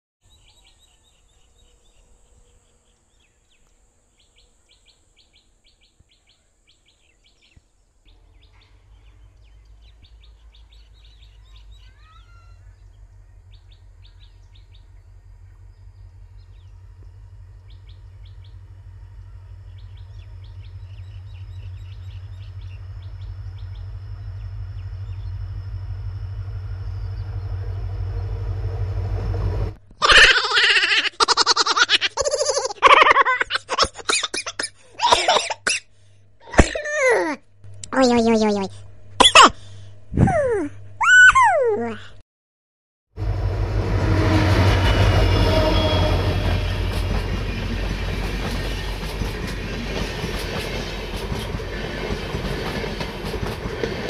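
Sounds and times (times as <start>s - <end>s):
small birds chirping: 0.3s - 25.6s
diesel locomotive rumble: 8.0s - 33.6s, 43.2s - 54.0s.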